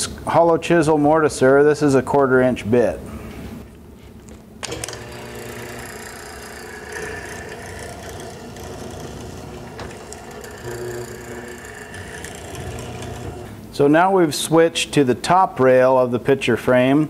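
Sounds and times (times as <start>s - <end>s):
mortiser motor running: 4.6s - 13.5s
chisel cutting hardwood: 4.7s - 13.5s.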